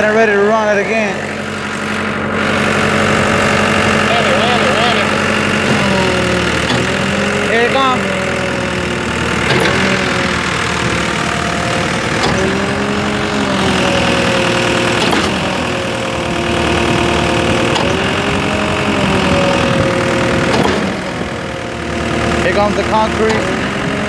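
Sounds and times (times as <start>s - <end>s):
concrete pump engine droning: 0.0s - 24.0s
pump clunk: 5.1s - 21.6s, 22.2s - 23.8s.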